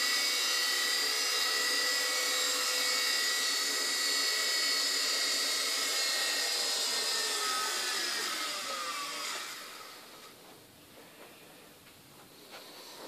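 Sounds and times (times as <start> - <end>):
toy helicopter motor whining: 0.0 - 10.4.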